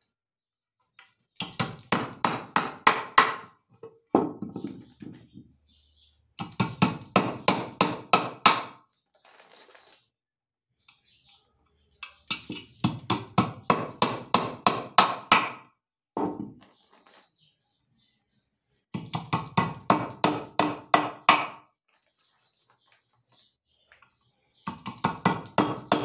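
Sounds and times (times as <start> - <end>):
hammer driving nails into wood: 1.4 - 3.5, 6.4 - 8.8, 19.0 - 21.6, 24.7 - 26.0.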